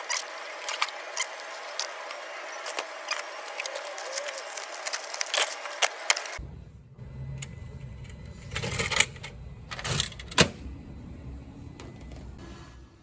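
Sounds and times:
plastic packaging crinkling: 0.0 - 6.4.

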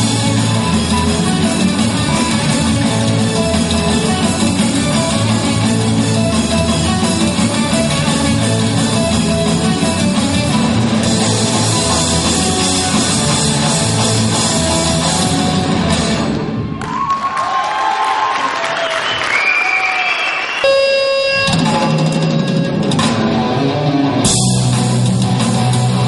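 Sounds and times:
live rock band playing: 0.0 - 16.8, 20.7 - 26.0
crowd cheering: 16.2 - 21.6.

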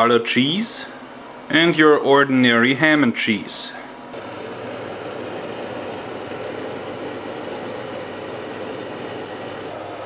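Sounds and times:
oil sizzling in deep fryer: 4.2 - 10.0.

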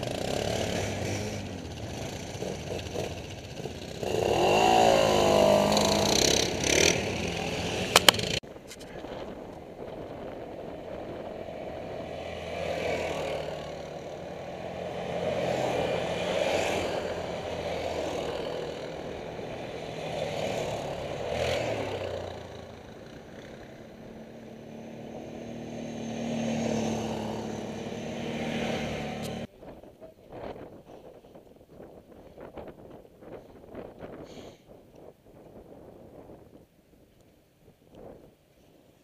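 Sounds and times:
quad bike engines passing: 0.0 - 29.5.

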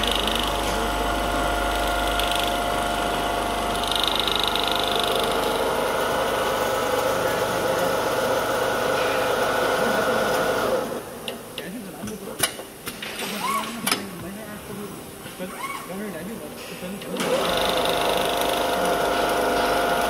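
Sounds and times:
sewing machine whining: 0.0 - 11.0, 17.2 - 20.0.

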